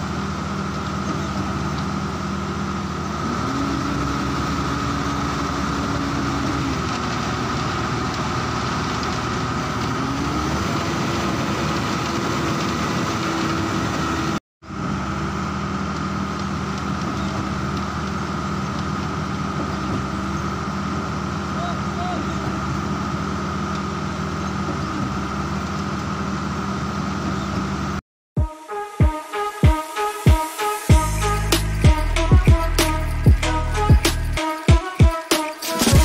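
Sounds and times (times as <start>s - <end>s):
engine idling: 0.0s - 28.0s, 30.9s - 35.2s
high whine: 28.4s - 36.0s.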